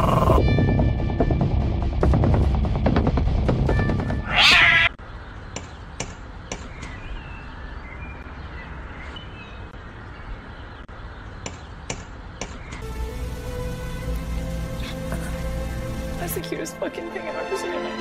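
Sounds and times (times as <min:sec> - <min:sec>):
cat yowling: 0:04.3 - 0:05.0.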